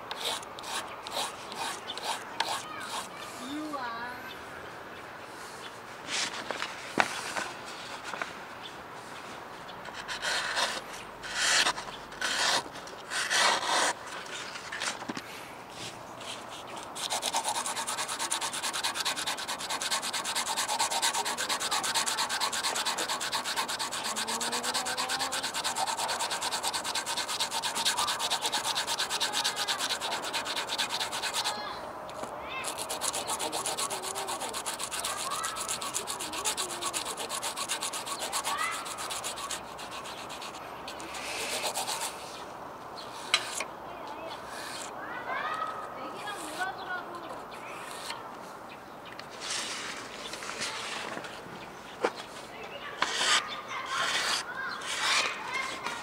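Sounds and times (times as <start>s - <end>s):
knife blade scraping on sandpaper: 0.1s - 3.2s, 9.9s - 15.0s, 16.2s - 31.6s, 32.6s - 42.4s, 43.0s - 43.7s, 44.4s - 44.9s, 47.7s - 48.2s, 53.0s - 56.0s
blade slicing paper: 16.2s - 31.6s, 32.6s - 42.2s, 53.0s - 56.0s.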